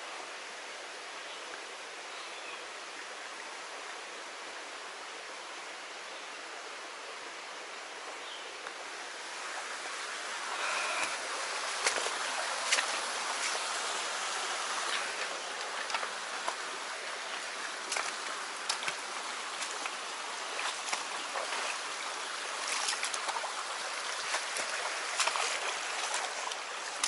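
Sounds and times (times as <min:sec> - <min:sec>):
stream babbling over stones: 0:00.1 - 0:27.0
footsteps over stones and twigs: 0:10.6 - 0:23.6.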